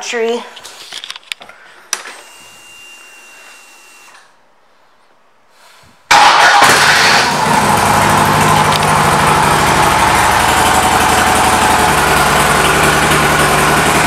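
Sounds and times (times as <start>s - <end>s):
fuel pump whine: 1.9s - 4.3s, 6.1s - 14.0s
motorcycle engine idling: 7.5s - 14.0s.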